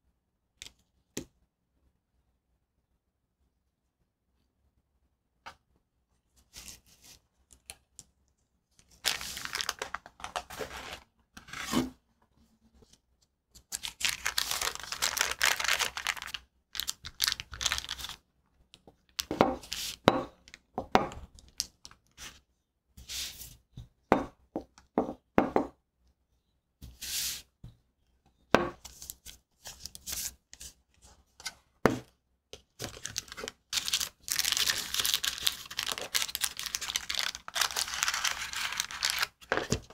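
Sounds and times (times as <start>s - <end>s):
parchment paper rustling and crinkling: 8.8s - 11.8s, 12.8s - 18.2s, 32.6s - 39.9s.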